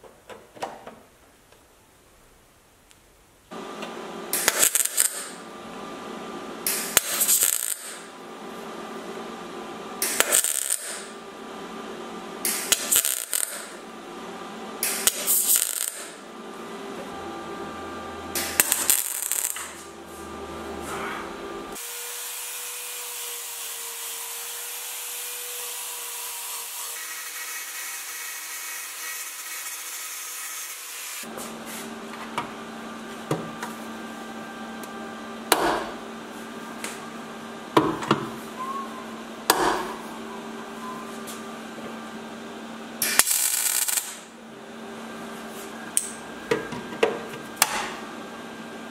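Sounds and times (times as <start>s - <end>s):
welder crackling hiss: 4.3s - 5.4s, 6.6s - 8.1s, 10.0s - 11.2s, 12.4s - 13.8s, 14.8s - 16.2s, 18.4s - 19.9s, 43.0s - 44.3s.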